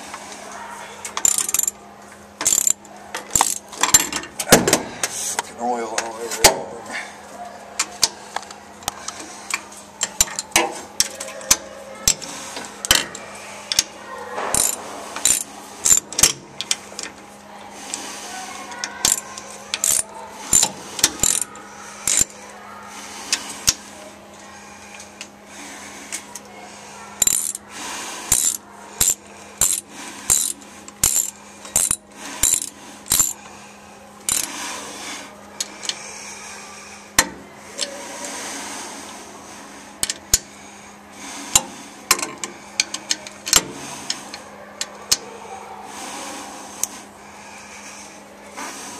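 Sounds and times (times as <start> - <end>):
wrench clinking on bolts: 1.2 - 1.8, 2.4 - 4.2, 14.5 - 16.4, 19.0 - 22.3, 27.2 - 27.6, 28.3 - 33.4, 34.3 - 34.5.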